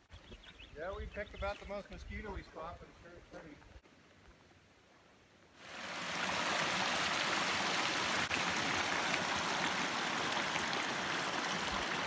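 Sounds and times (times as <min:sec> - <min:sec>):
stream running over rocks: 0:05.6 - 0:12.0.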